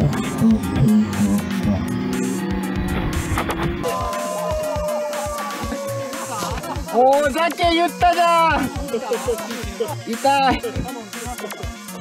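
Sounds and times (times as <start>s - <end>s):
bass line: 0.0s - 4.8s.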